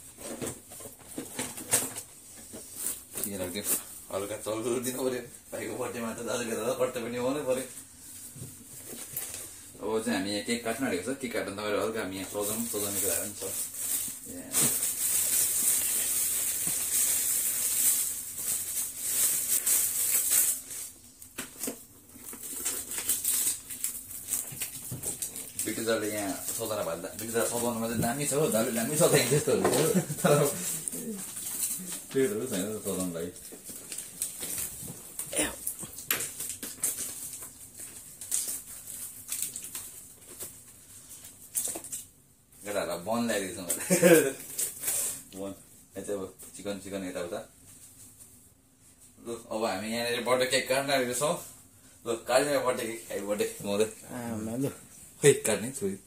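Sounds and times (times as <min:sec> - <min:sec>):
food wrapping crinkling: 0:11.8 - 0:42.2, 0:43.8 - 0:45.3
plastic bag rustling: 0:12.0 - 0:42.1, 0:43.8 - 0:45.3.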